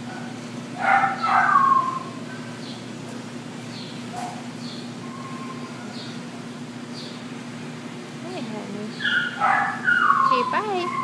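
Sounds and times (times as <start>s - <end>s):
steady low hum: 0.0s - 11.0s
dog whining: 0.8s - 2.2s, 5.0s - 6.2s, 9.0s - 11.0s.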